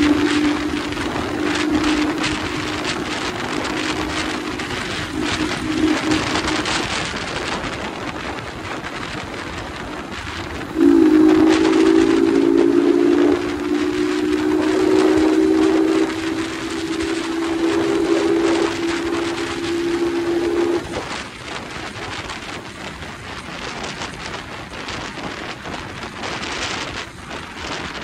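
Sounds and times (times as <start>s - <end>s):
motorcycle engine droning: 0.0s - 8.2s, 10.2s - 21.2s.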